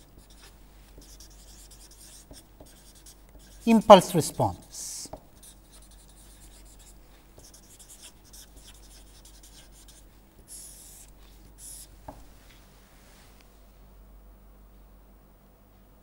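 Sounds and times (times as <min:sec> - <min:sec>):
marker pen writing on paper: 0:00.0 - 0:11.9.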